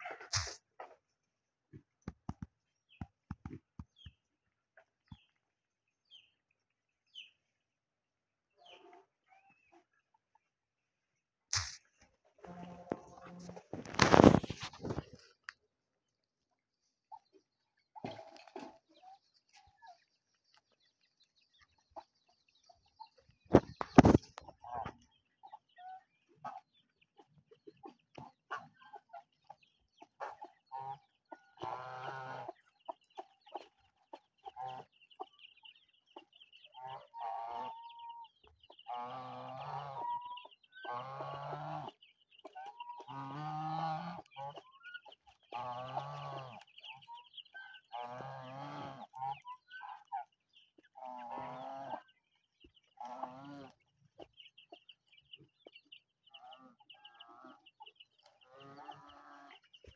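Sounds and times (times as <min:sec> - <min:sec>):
chickens clucking: 0:00.0 - 0:04.2, 0:04.8 - 0:05.4, 0:08.6 - 0:10.5, 0:11.5 - 0:16.2, 0:16.8 - 0:59.9
geese calling: 0:36.1 - 0:52.2.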